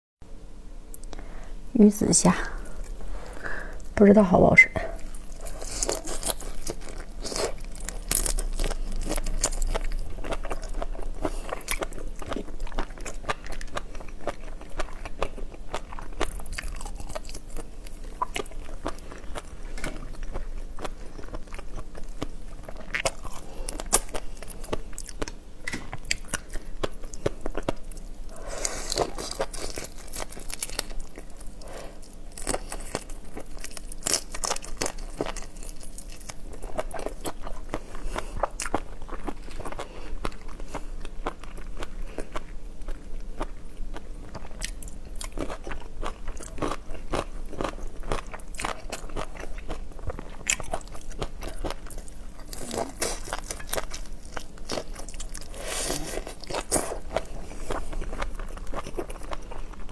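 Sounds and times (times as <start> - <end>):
shells crackling while peeled: 5.0 - 37.6
biting and chewing: 5.0 - 59.9.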